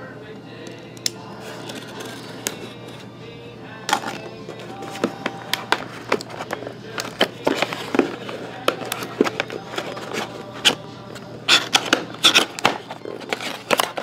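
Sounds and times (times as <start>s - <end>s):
hands tapping and scraping cardboard box: 4.8s - 10.8s.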